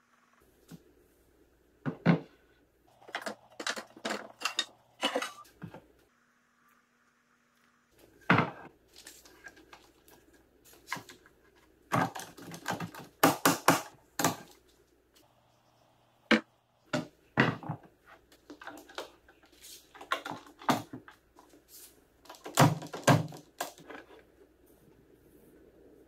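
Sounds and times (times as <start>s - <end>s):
wooden boards knocking and clattering: 11.9s - 14.5s, 16.3s - 19.3s, 22.3s - 24.1s.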